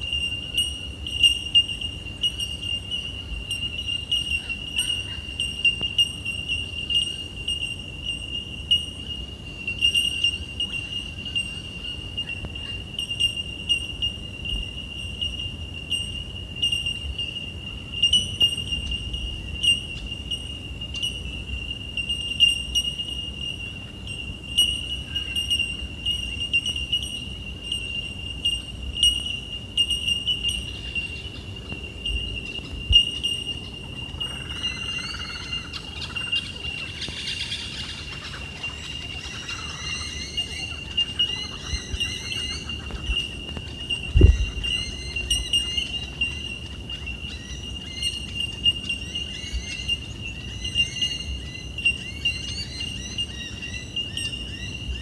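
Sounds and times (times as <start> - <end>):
high-pitched insect drone: 0.0 - 55.0
birds chirping: 22.0 - 55.0.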